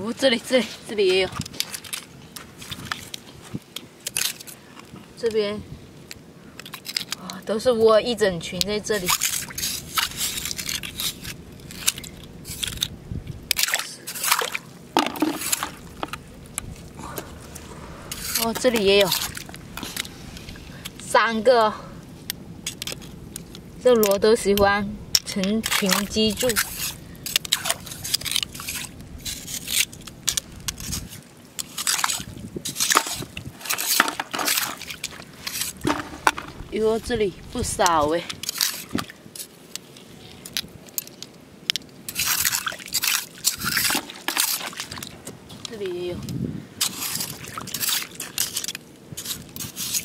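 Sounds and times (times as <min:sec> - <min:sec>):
water sloshing: 0:00.0 - 0:05.2, 0:08.4 - 0:46.2, 0:46.8 - 0:50.0
shells clicking and scraping: 0:06.6 - 0:07.3, 0:09.0 - 0:16.7, 0:22.2 - 0:24.2, 0:25.2 - 0:36.7, 0:38.3 - 0:45.8, 0:46.8 - 0:50.0
water splashing and dripping: 0:40.5 - 0:45.8.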